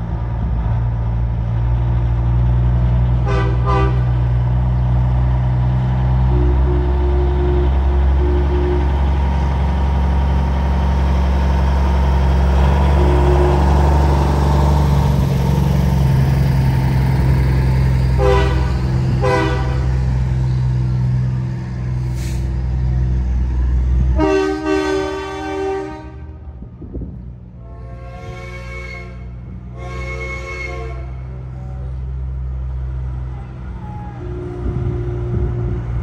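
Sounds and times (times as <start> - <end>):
diesel truck engine droning: 0.0 - 36.0
truck horn: 3.2 - 4.2, 6.3 - 9.3, 12.7 - 14.4, 18.2 - 20.1, 24.1 - 26.6, 27.6 - 32.0, 34.1 - 35.9.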